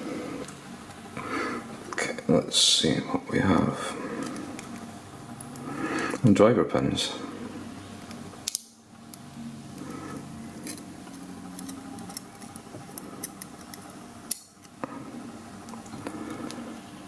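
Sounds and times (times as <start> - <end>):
faint steady hum: 0.0 - 17.0
metallic clicks and scrapes: 10.6 - 14.7.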